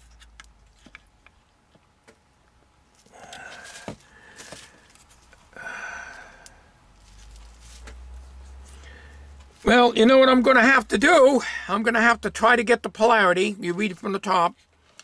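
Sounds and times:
man sighing heavily: 3.1s - 4.6s, 5.5s - 6.7s.

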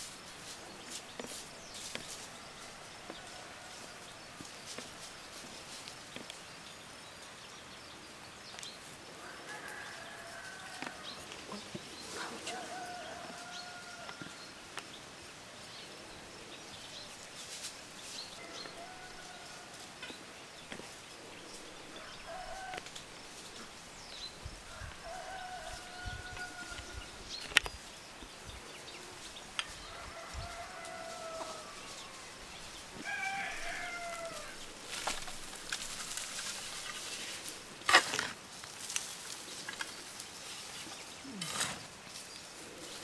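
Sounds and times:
small birds chirping: 0.0s - 37.8s, 38.5s - 43.0s
chickens calling: 18.0s - 43.0s.

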